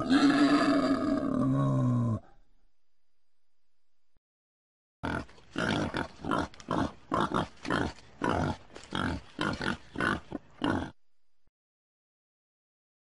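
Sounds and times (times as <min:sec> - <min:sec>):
wild boar grunting: 0:05.0 - 0:11.0.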